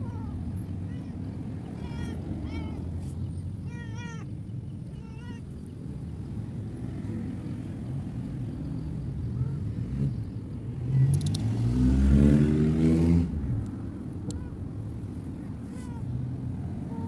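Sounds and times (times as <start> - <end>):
low traffic rumble: 0.0 - 17.0
vehicle engine passing: 6.6 - 14.6.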